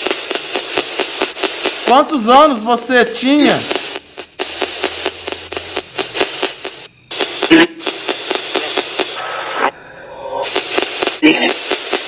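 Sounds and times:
rapid clicks: 0.0s - 2.6s, 3.2s - 9.7s, 10.4s - 12.0s
radio static hissing: 0.0s - 12.0s
snatches of radio broadcast: 0.0s - 12.0s.

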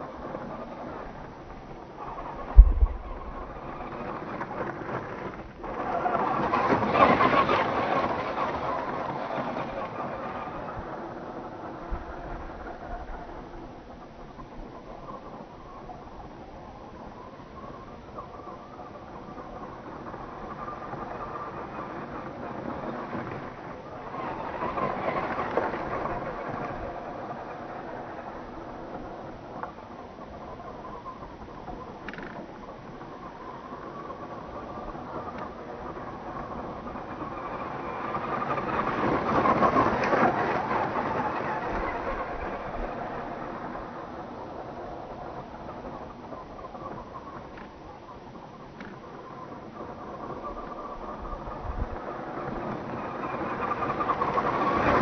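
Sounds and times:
toy truck driving over stones: 2.0s - 15.4s, 16.8s - 55.0s
low thump: 2.5s - 3.7s.

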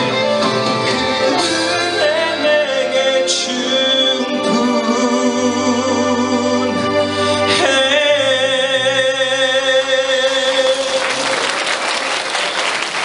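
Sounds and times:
man singing with vibrato: 0.0s - 11.4s
backing music: 0.0s - 13.0s
audience applause: 9.5s - 13.0s.

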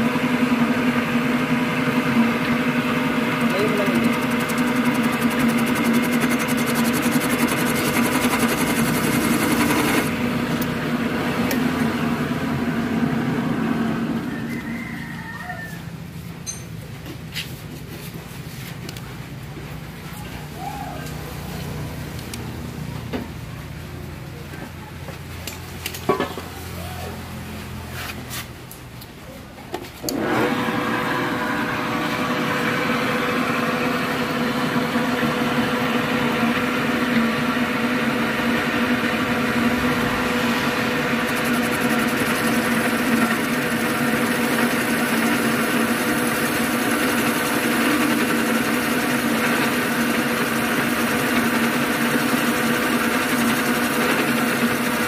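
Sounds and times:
boring machine running: 0.0s - 14.6s, 30.0s - 55.0s.

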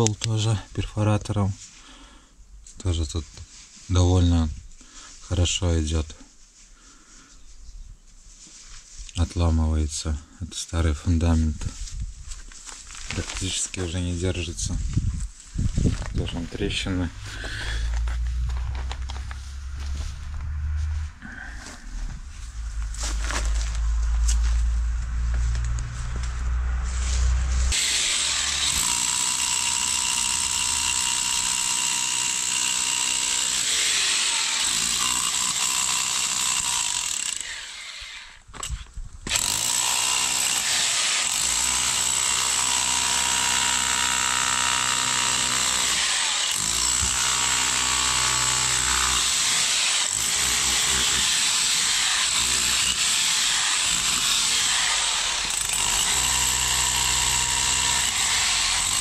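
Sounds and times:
rotary hammer chiselling concrete: 27.7s - 37.9s, 39.3s - 59.0s.

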